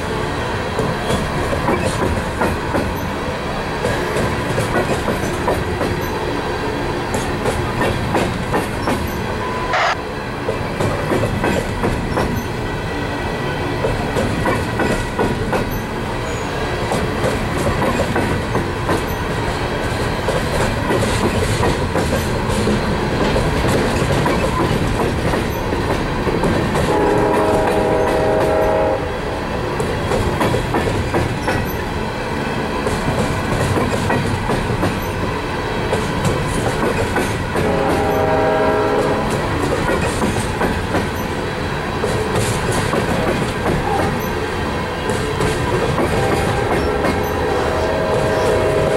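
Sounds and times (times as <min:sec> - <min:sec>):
wheels clicking over rail joints: 0:03.8 - 0:06.3, 0:13.8 - 0:16.0, 0:16.8 - 0:28.6, 0:29.8 - 0:31.8, 0:32.8 - 0:38.3, 0:39.0 - 0:41.4, 0:42.0 - 0:47.5
pitched tone: 0:09.4 - 0:10.0.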